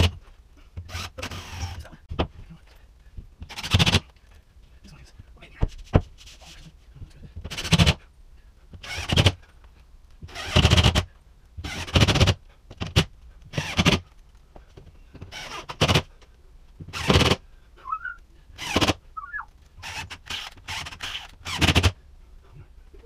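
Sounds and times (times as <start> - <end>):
drill driving screws: 0.9 - 1.8, 8.8 - 9.4, 10.3 - 14.0, 15.3 - 16.1, 16.9 - 17.4, 18.6 - 19.0, 19.8 - 22.0.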